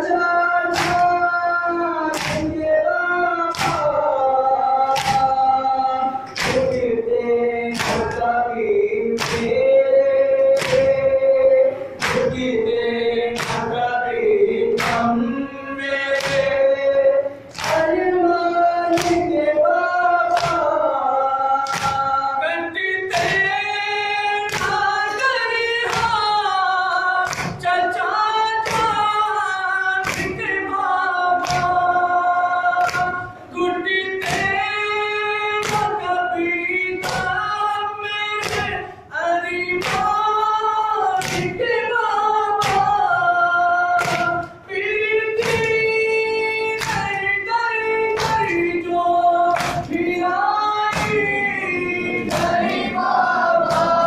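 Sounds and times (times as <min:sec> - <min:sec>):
hands slapping chests: 0:00.7 - 0:01.2, 0:02.1 - 0:02.6, 0:03.5 - 0:03.9, 0:04.9 - 0:05.4, 0:06.3 - 0:06.9, 0:07.8 - 0:08.3, 0:09.2 - 0:09.6, 0:10.6 - 0:11.0, 0:12.0 - 0:12.5, 0:13.4 - 0:13.7, 0:14.8 - 0:15.1, 0:17.5 - 0:17.9, 0:18.9 - 0:19.3, 0:20.3 - 0:20.7, 0:21.6 - 0:22.1, 0:27.3 - 0:27.6, 0:31.4 - 0:31.8, 0:32.8 - 0:33.2, 0:41.2 - 0:41.5, 0:44.0 - 0:44.5, 0:49.5 - 0:50.0, 0:50.9 - 0:51.4, 0:52.2 - 0:52.9, 0:53.6 - 0:54.0
men chanting together: 0:46.9 - 0:54.0.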